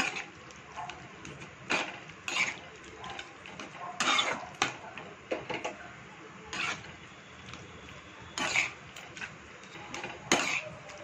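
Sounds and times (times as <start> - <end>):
metal spatula scraping a pan: 0.0 - 0.4, 1.6 - 4.8, 6.5 - 7.1, 8.2 - 11.0.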